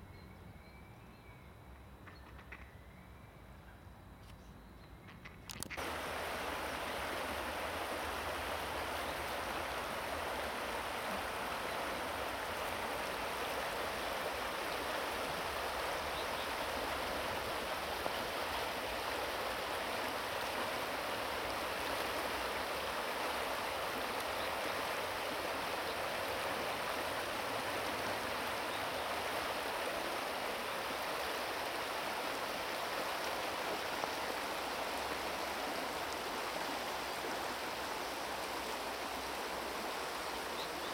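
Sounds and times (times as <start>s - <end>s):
river water rushing over gravel: 5.5s - 40.9s.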